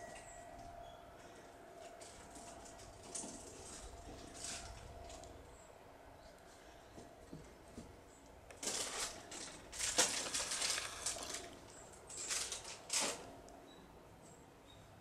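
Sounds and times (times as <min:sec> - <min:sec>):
dry leaves rustling and crunching: 0:03.1 - 0:05.3, 0:08.5 - 0:13.3.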